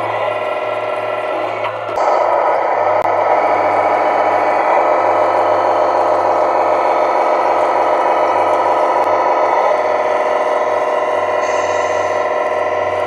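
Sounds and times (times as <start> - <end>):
simulated diesel engine from speaker: 0.0 - 13.0.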